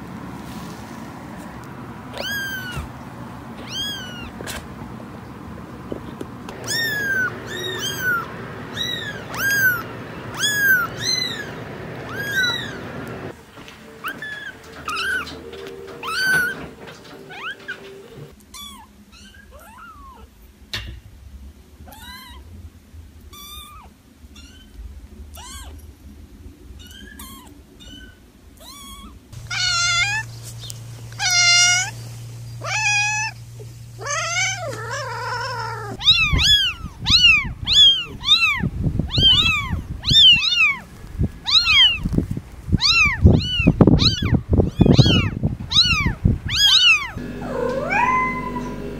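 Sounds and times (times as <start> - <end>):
low rumbling noise: 0.0 - 18.3, 29.2 - 48.9
kitten mewing: 2.1 - 2.9, 3.6 - 4.6, 6.5 - 12.9, 23.4 - 25.8, 26.8 - 30.3, 31.2 - 32.0, 32.6 - 40.8, 41.4 - 42.0, 42.8 - 48.9
cats meowing: 2.1 - 4.7, 6.5 - 13.4, 14.0 - 20.3, 21.8 - 22.5, 23.3 - 25.8, 26.8 - 48.9.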